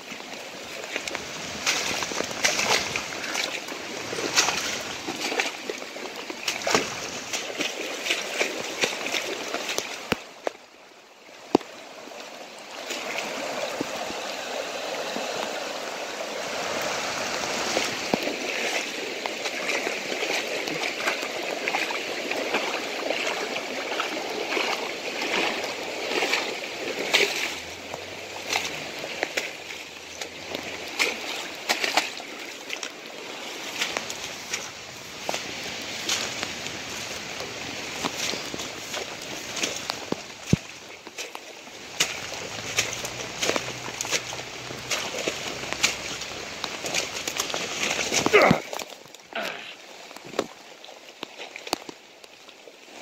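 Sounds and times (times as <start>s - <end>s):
creek water rushing: 0.0s - 53.0s
water splashes: 0.0s - 53.0s.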